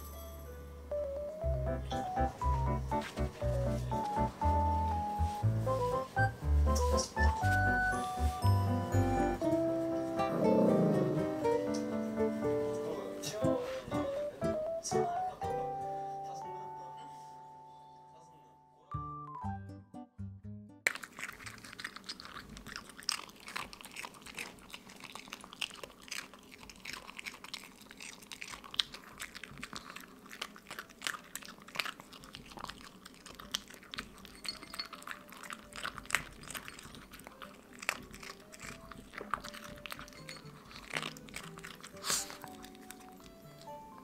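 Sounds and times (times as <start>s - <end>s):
soft background music: 0.0s - 22.3s, 30.4s - 44.0s
dog crunching dry kibble: 20.9s - 43.8s.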